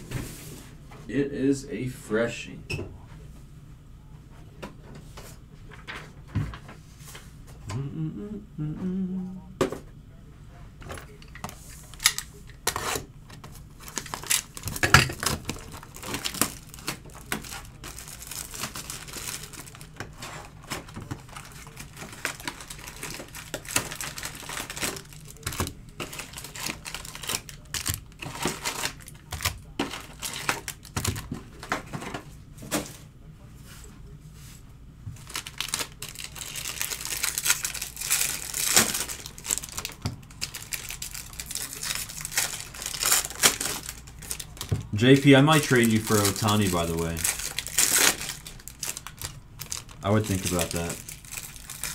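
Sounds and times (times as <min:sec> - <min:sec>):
foil card packs crinkling: 0:11.2 - 0:32.2, 0:35.2 - 0:51.9.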